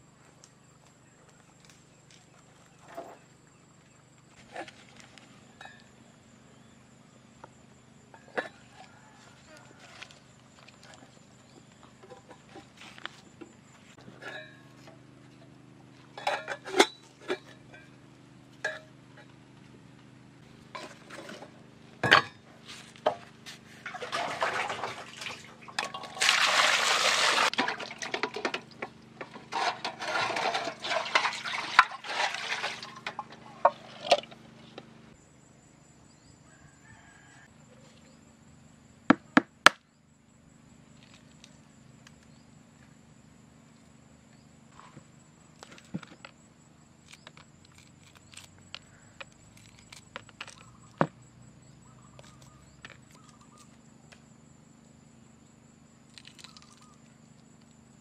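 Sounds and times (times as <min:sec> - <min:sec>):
water splashing into metal pot: 0:23.9 - 0:28.9, 0:30.1 - 0:33.3.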